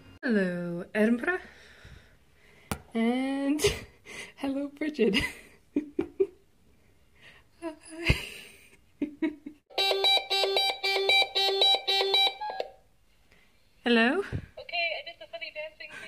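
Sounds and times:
intercom electronic warble ringing: 9.7s - 12.7s.

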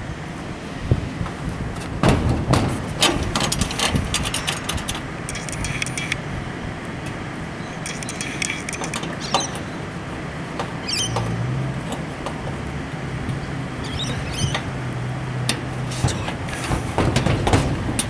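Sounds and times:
steady background noise: 0.0s - 18.0s
small metallic clinks and ticks: 4.2s - 6.2s, 7.8s - 9.1s.

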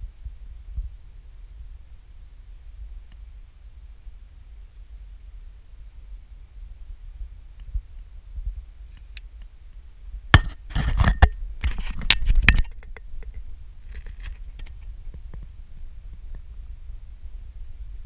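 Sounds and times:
wind rumble on microphone: 0.0s - 18.0s
camera handling clicks and scraping: 10.4s - 14.8s.

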